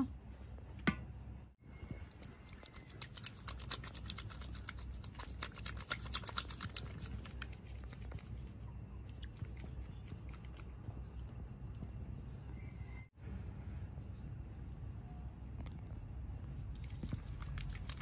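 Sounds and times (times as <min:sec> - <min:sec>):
soapy hands lathering shampoo: 0:02.3 - 0:08.4, 0:16.8 - 0:18.0.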